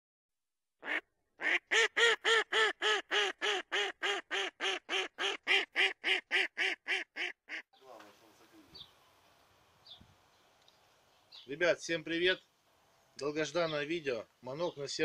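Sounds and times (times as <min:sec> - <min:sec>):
duck quacking: 0:00.8 - 0:07.7.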